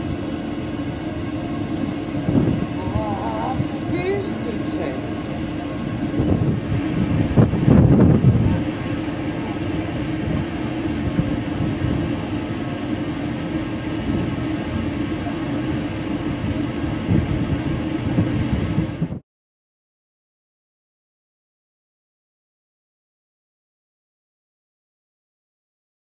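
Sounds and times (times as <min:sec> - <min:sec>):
boat engine rumble: 0:00.0 - 0:19.2
wind buffeting microphone: 0:00.0 - 0:19.2.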